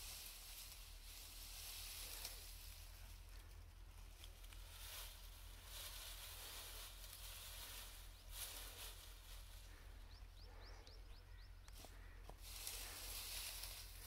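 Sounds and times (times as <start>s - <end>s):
faint hiss: 0.0s - 3.3s
dry twigs rustling and crackling: 0.0s - 14.0s.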